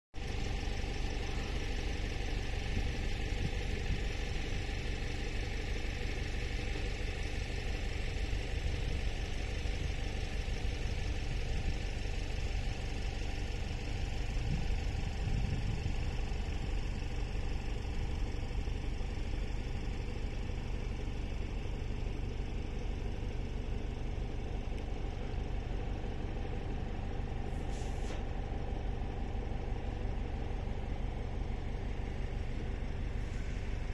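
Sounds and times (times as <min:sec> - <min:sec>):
excavator diesel engine idling: 0:00.2 - 0:33.9.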